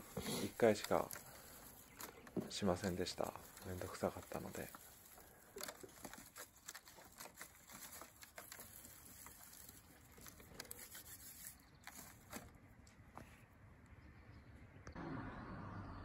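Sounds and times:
fern shoots rustling and crackling: 0:00.0 - 0:12.6.

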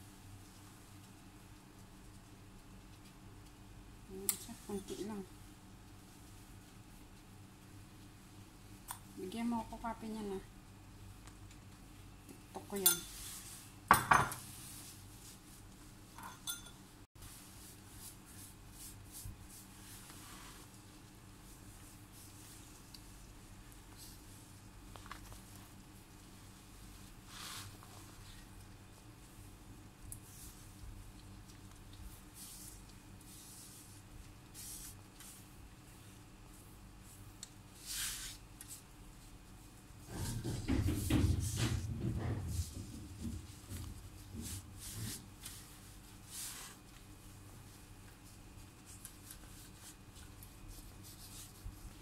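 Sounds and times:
soft handling sounds: 0:11.1 - 0:40.4, 0:42.6 - 0:52.0
kitchenware clink: 0:12.8 - 0:13.2, 0:13.9 - 0:14.4, 0:16.2 - 0:16.8
knock: 0:40.2 - 0:43.4.

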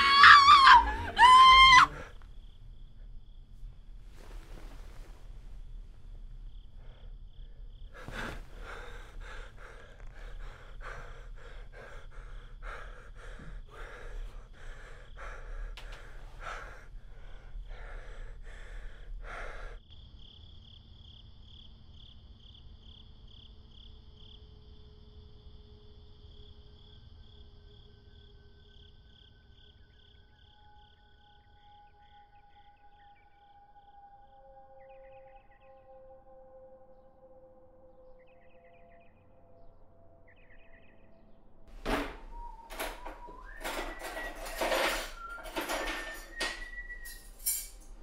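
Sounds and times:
insects chirring: 0:00.0 - 0:37.1, 0:37.9 - 0:41.3
man breathing hard: 0:06.8 - 0:19.8.

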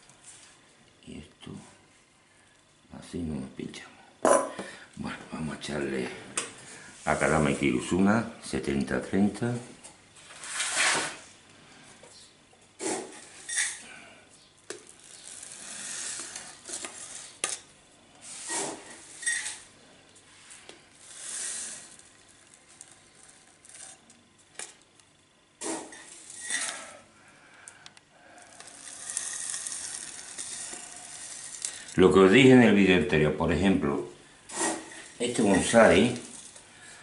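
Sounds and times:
grit pouring and rattling: 0:14.8 - 0:17.4, 0:21.0 - 0:24.3, 0:25.6 - 0:26.9, 0:28.4 - 0:32.6, 0:34.6 - 0:36.6.

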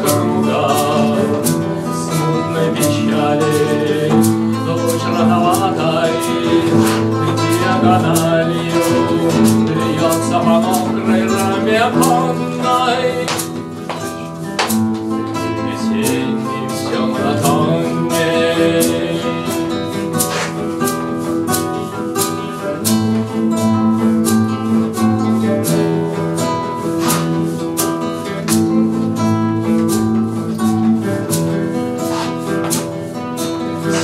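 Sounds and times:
sharp percussive clicks: 0:00.0 - 0:24.3
acoustic guitars strumming: 0:00.0 - 0:34.0.

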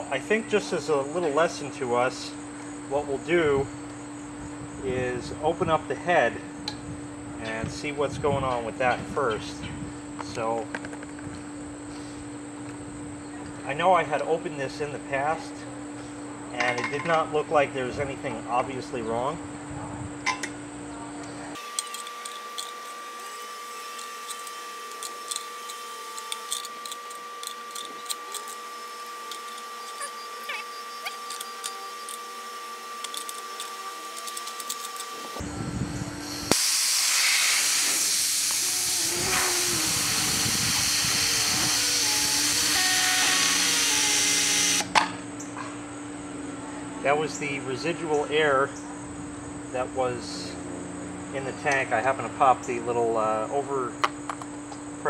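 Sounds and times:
compressed air hissing from valve: 0:32.8 - 0:44.8.

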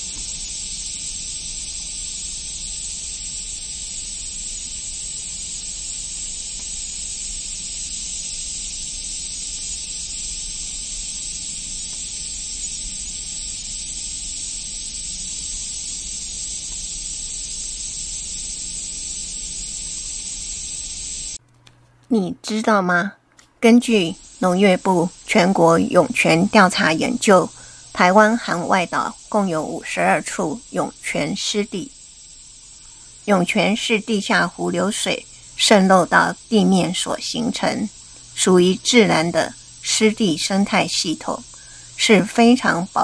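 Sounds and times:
water hissing: 0:00.0 - 0:21.4, 0:23.8 - 0:43.0.

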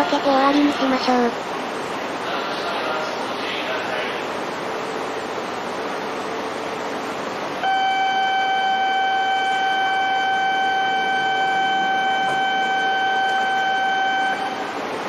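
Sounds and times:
departure buzzer tone: 0:07.6 - 0:14.8.

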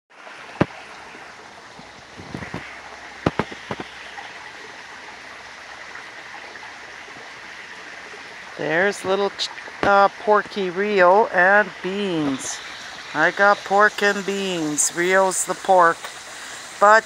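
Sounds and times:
running water in a pond: 0:00.1 - 0:17.0
sharp clicks and knocks: 0:02.2 - 0:03.9.

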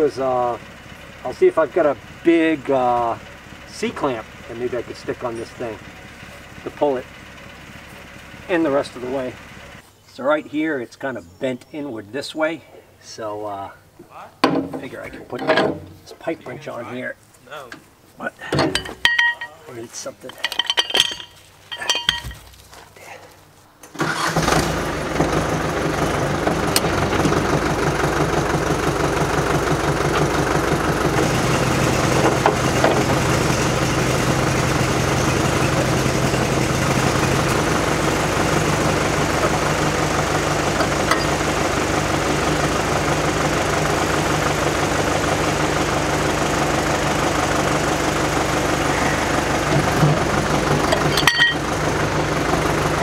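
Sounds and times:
engine running: 0:00.0 - 0:10.0, 0:23.4 - 0:53.0.

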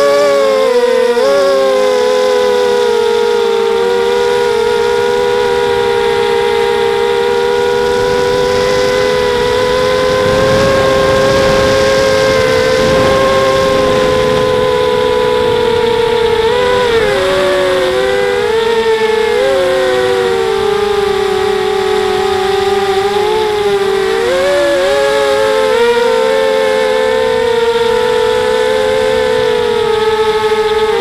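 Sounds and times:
drone propellers whining: 0:00.0 - 0:31.0
rushing noise: 0:05.4 - 0:19.5.

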